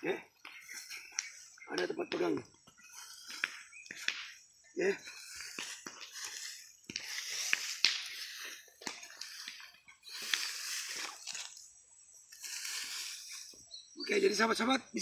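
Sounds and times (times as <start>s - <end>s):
rake scraping soil: 5.0s - 13.7s.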